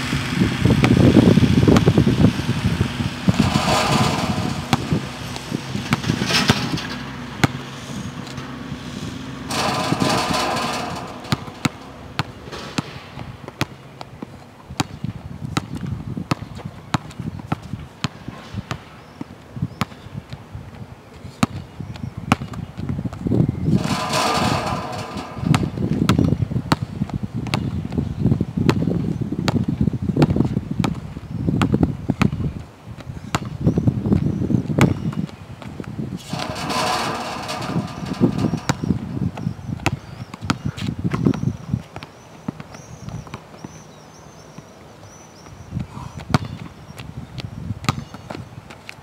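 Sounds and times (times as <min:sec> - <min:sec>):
basketball bouncing on hard court: 0:03.2 - 0:07.7, 0:09.5 - 0:18.8, 0:23.7 - 0:28.0, 0:33.3 - 0:33.6, 0:34.2 - 0:35.3, 0:36.2 - 0:42.1, 0:47.8 - 0:48.3.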